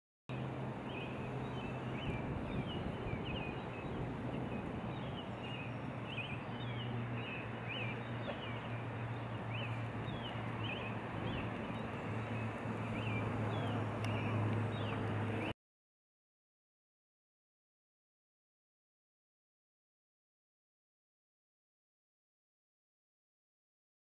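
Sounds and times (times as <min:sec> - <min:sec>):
small birds chirping: 0:00.3 - 0:15.5.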